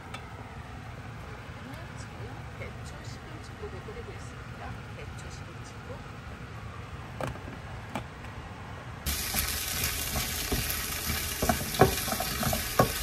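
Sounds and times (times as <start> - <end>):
food sizzling in oil: 9.1 - 13.0
soup simmering: 9.1 - 13.0
spatula scraping pan: 9.1 - 13.0.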